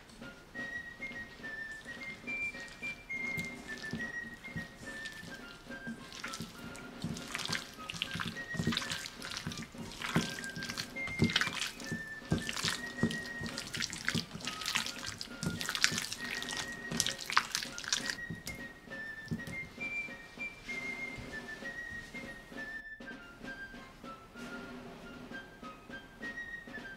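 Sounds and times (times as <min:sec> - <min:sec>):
soft whistled tune: 0:00.0 - 0:26.9
hand squelching in batter: 0:01.3 - 0:18.6.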